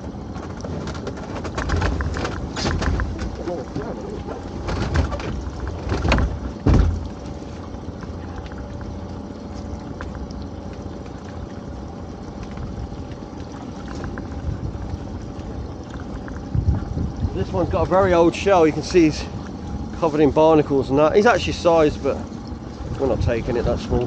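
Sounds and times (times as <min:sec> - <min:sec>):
faint even hum: 0:00.0 - 0:24.0
water and boat noise: 0:00.0 - 0:24.0.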